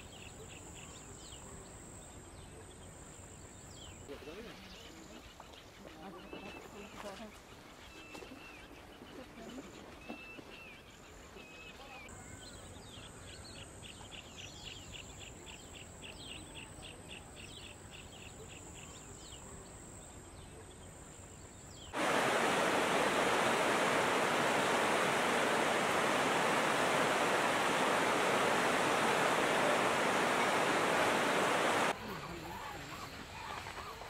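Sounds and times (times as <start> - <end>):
fast-flowing river rushing: 22.0 - 32.0.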